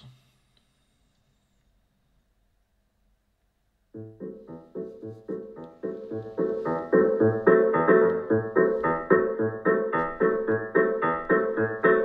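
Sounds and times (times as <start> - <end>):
piano music from a speaker: 4.0 - 12.0.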